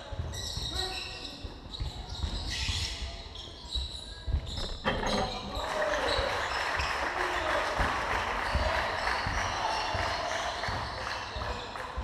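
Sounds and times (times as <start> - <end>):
shoes squeaking: 0.0 - 6.6.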